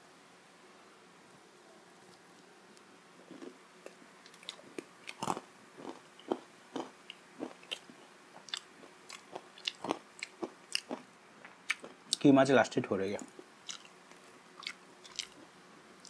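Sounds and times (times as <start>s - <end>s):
crunchy pastry chewing: 3.2s - 12.2s, 13.2s - 15.6s.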